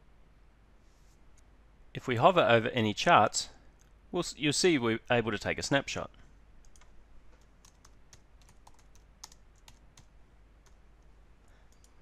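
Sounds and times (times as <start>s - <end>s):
typing on a computer keyboard: 6.6s - 10.8s.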